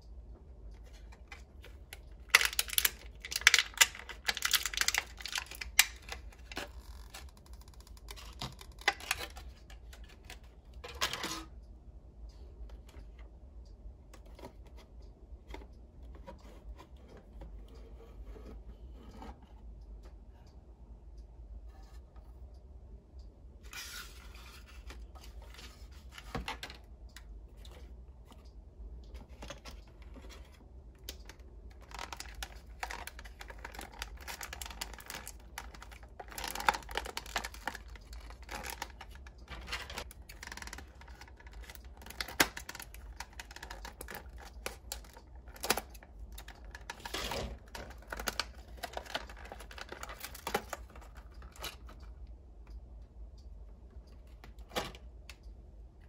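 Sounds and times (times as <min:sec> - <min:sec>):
packaging rustling: 0:01.1 - 0:11.2, 0:29.2 - 0:52.0
plastic film crinkling and tearing: 0:01.7 - 0:10.4, 0:31.1 - 0:51.9.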